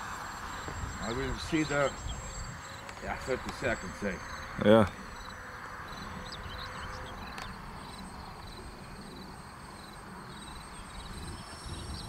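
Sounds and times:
distant electric jet model rushing: 0.0s - 12.0s
insects chirping: 0.0s - 12.0s
wind rumble on microphone: 0.0s - 12.0s.

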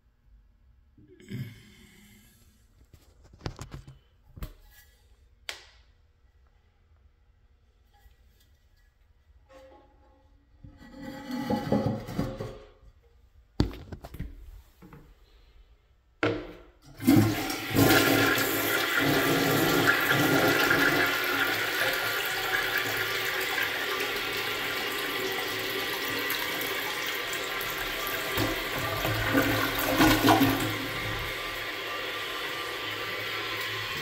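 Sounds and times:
toilet flushing: 16.7s - 34.0s.

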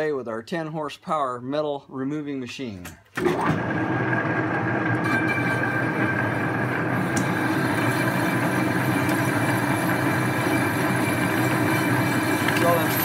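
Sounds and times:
metal lathe cutting: 3.5s - 13.0s
high ringing tone: 5.0s - 13.0s.

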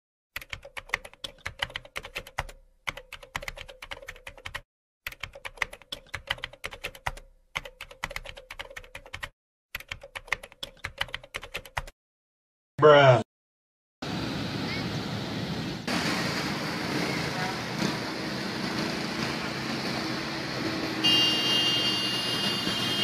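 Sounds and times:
keyboard typing: 0.4s - 12.0s.

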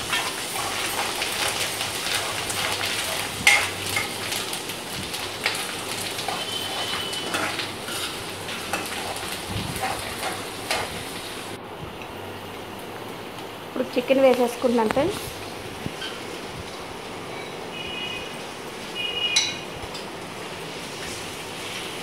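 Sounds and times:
steel spoon scraping a pan: 0.0s - 4.3s, 5.4s - 10.9s
vegetables sizzling in hot oil: 0.0s - 11.6s, 20.3s - 22.0s.

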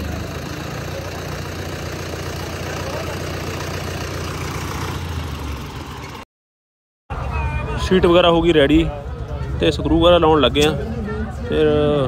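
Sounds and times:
tractor diesel engine idling: 0.0s - 6.2s.

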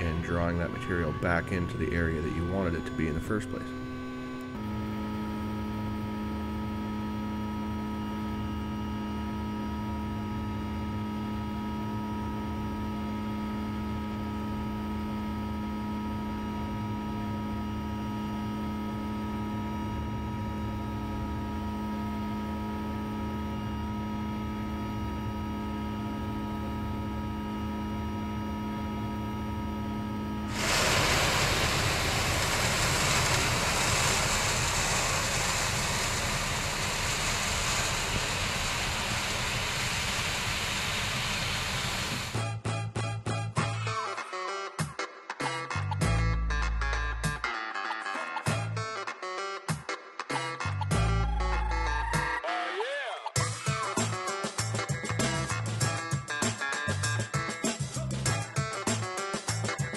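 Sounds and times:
diesel engine and hydraulics hum: 0.0s - 12.5s, 30.4s - 42.4s
rushing noise: 30.5s - 42.4s.

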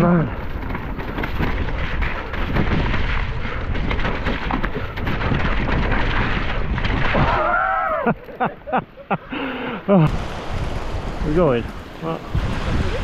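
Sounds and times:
wind buffeting microphone: 0.0s - 7.4s, 10.1s - 13.0s
bike rattling: 0.0s - 8.6s.

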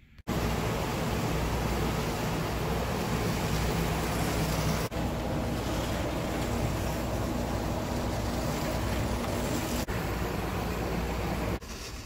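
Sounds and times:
wheels rolling on rails: 3.1s - 9.9s.

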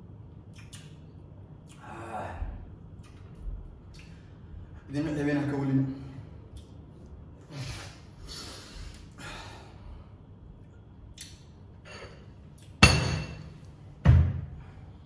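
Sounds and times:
sharp knocks with ringing: 12.8s - 13.5s.

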